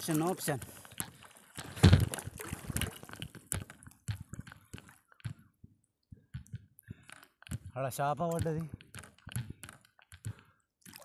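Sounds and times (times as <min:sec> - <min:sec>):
water splashing around a board: 0:00.0 - 0:05.4
water dripping: 0:00.0 - 0:07.6, 0:10.0 - 0:11.0.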